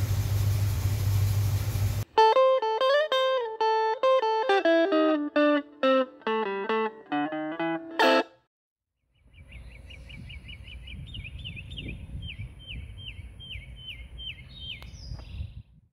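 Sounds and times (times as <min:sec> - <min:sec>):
electric guitar melody: 0:02.1 - 0:08.5
bird chirping: 0:09.0 - 0:15.6.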